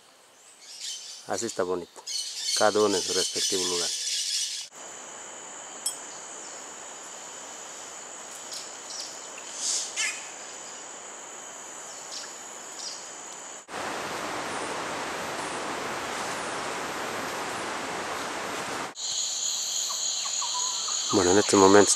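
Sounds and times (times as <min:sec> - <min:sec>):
high insect drone: 0:00.3 - 0:21.9
rushing hiss: 0:08.7 - 0:10.7, 0:13.2 - 0:20.2.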